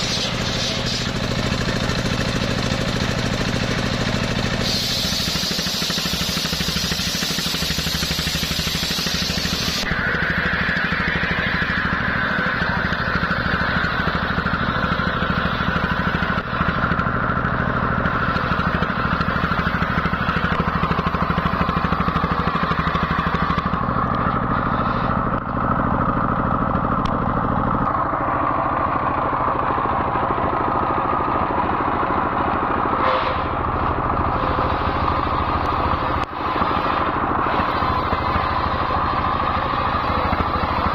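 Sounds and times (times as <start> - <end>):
circular saw whining: 0.0 - 26.4, 27.8 - 40.9
diesel engine running: 0.0 - 40.9.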